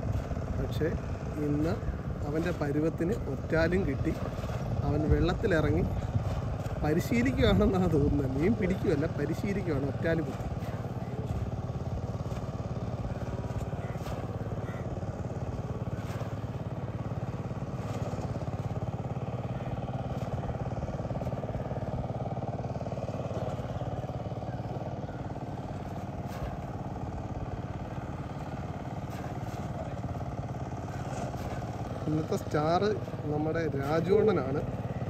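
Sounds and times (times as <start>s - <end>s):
small engine running: 0.0s - 35.0s.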